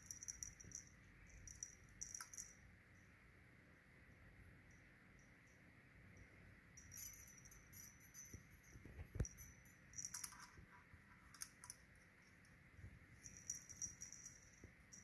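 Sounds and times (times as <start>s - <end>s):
cat toy jingling and rattling: 0.0s - 2.6s, 6.8s - 12.5s, 13.1s - 15.0s.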